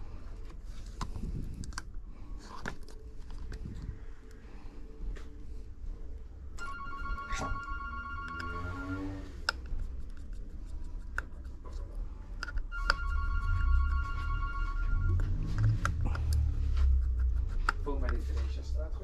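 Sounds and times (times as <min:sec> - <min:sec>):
low hum: 0:02.9 - 0:17.8
music with long held tones: 0:04.1 - 0:09.5.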